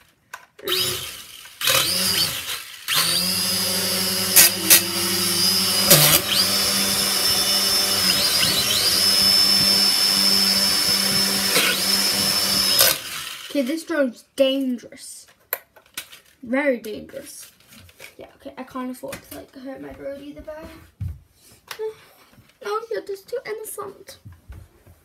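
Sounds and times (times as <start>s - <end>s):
toy drone motors whirring: 0.6s - 14.0s.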